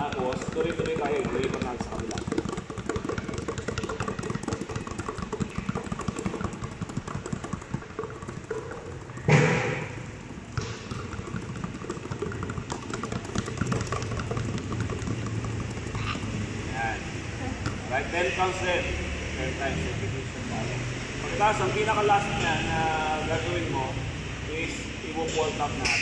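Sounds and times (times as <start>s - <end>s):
basketballs dribbled on hard court: 0.0s - 18.5s
loud thud: 9.3s - 10.0s.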